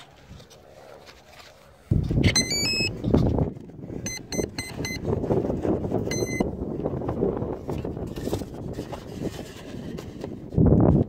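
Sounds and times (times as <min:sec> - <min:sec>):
wind rumble on microphone: 0:01.8 - 0:11.0
speed controller beeping: 0:02.3 - 0:02.9, 0:04.1 - 0:05.0, 0:06.1 - 0:06.4.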